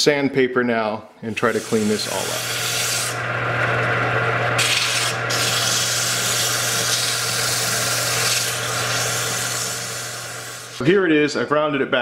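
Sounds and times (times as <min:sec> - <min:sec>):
sandpaper hissing on spinning wood: 0:01.3 - 0:03.2, 0:04.6 - 0:10.8
lathe low hum: 0:01.3 - 0:10.9.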